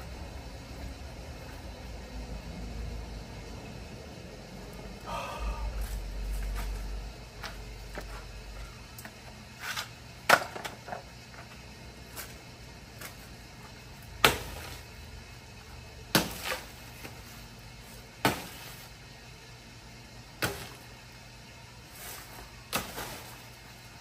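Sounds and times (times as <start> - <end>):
blade chopping banana stalk: 14.2 - 14.9, 16.1 - 17.2, 18.2 - 18.9, 20.4 - 20.8, 22.7 - 23.4.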